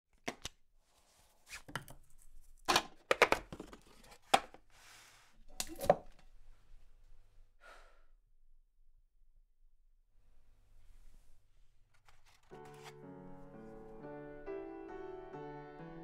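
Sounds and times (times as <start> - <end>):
paper rustling: 11.9 - 14.0.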